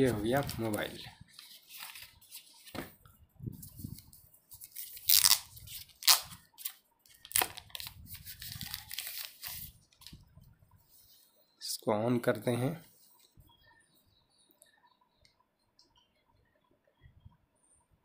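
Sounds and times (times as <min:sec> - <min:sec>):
plastic wrapping rustling and crackling: 0:03.6 - 0:10.2.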